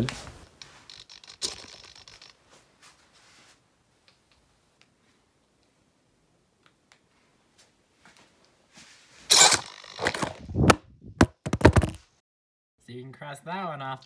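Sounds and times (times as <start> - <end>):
phone handling rustling: 9.4 - 12.0.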